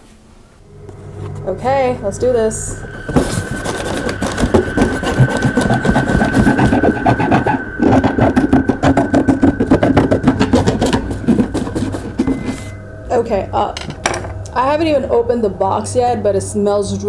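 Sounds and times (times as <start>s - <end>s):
knife sawing through cardboard: 3.1s - 12.4s.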